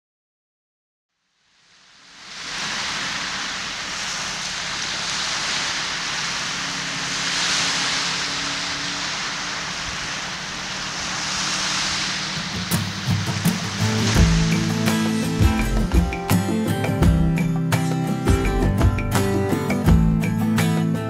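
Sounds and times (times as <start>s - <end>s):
waves washing onto beach: 1.5s - 18.5s.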